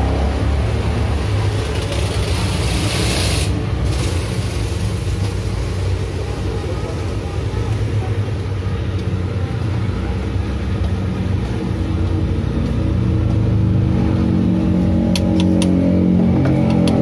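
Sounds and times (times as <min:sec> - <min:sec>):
vehicle engine rumble: 0:00.0 - 0:17.0.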